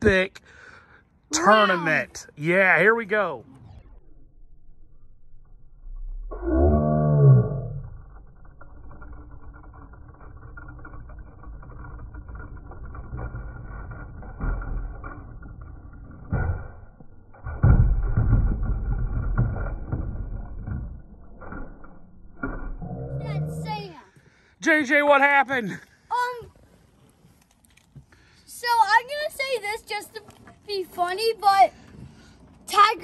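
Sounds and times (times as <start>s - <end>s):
toy trucks rolling and clattering: 7.8s - 24.0s, 24.6s - 33.0s.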